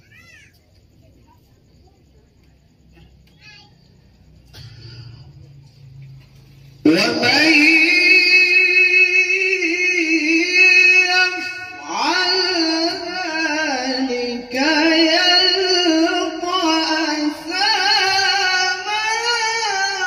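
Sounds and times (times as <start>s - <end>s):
man reciting melodically: 6.8s - 20.0s.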